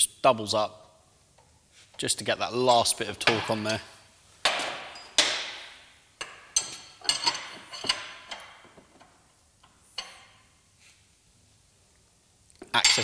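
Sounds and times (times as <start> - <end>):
spanners clinking on metal bolt: 4.5 - 9.2, 9.9 - 10.4, 12.8 - 13.0.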